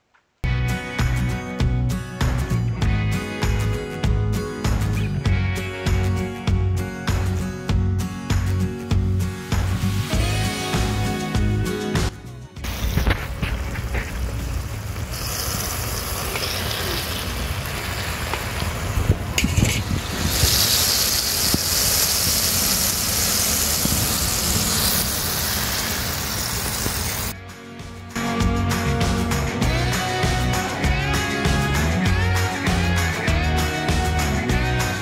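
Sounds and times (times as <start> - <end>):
food sizzling in a wok: 9.2 - 11.0, 13.9 - 27.4
low fire rumble: 12.6 - 27.3.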